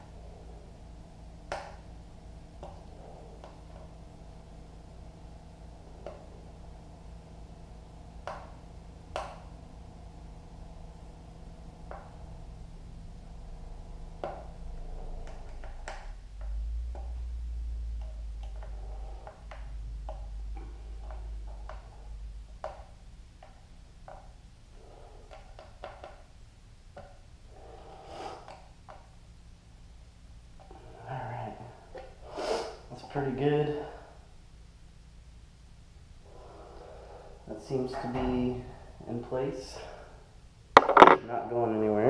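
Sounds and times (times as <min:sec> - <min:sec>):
low rumble: 0:00.0 - 0:22.5
low hum: 0:00.0 - 0:28.0.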